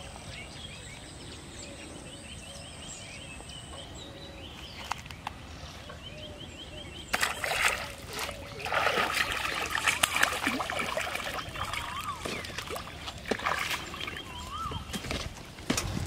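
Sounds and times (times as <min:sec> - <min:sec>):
fish splashing in water: 0:07.1 - 0:15.0.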